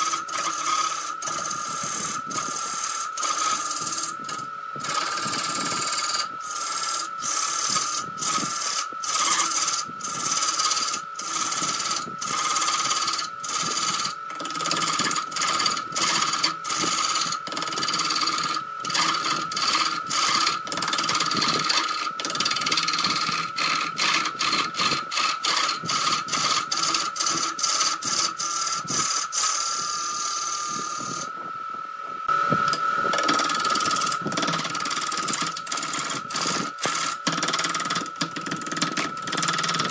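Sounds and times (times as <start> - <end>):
gouge rasping into wood: 0.0 - 30.3
wood lathe whine: 0.0 - 39.9.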